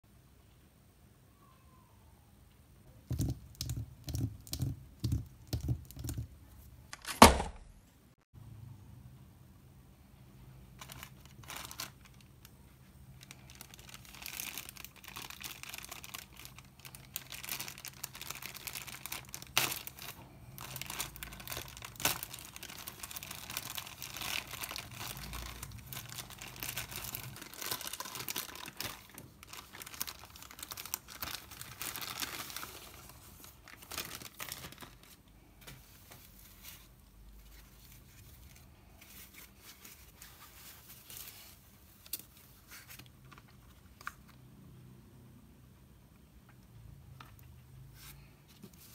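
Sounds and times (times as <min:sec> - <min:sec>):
packaging crinkling and rustling: 0:10.7 - 0:44.4.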